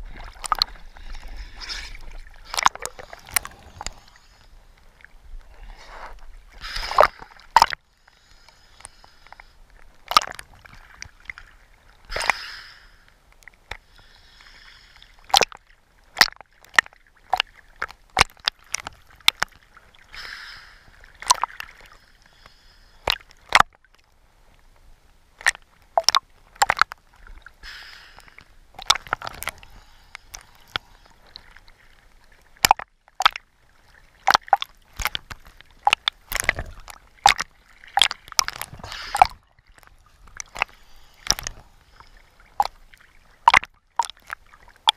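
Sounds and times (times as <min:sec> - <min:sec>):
water sloshing underwater: 0:00.0 - 0:44.9.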